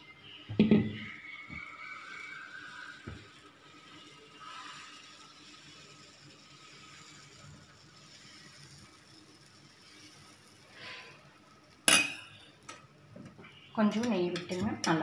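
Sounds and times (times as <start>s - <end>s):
batter sizzling: 0.0s - 15.0s
ladle scraping hot griddle: 1.0s - 12.9s.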